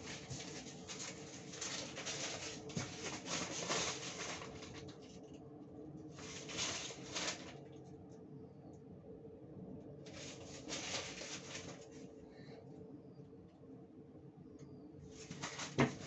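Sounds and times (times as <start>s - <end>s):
paper towel wiping counter: 0.0s - 4.7s, 10.1s - 12.1s
steady low hum: 0.0s - 16.0s.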